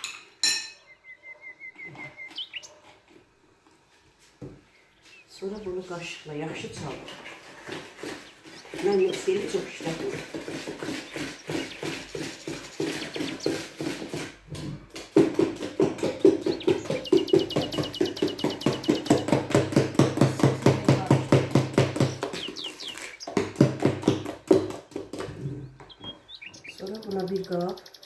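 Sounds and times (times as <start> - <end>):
small bird chirping: 0.8 - 2.9, 10.8 - 14.0, 16.2 - 19.4, 22.0 - 23.4, 25.6 - 28.0
spoon beating batter in bowl: 6.8 - 26.0.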